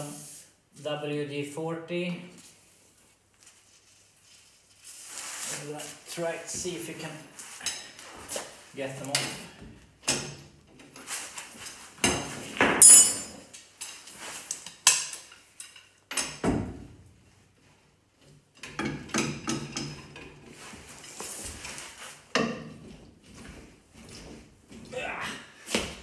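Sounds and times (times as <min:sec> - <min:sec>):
wrench clanking on metal bolts: 0:12.8 - 0:13.4.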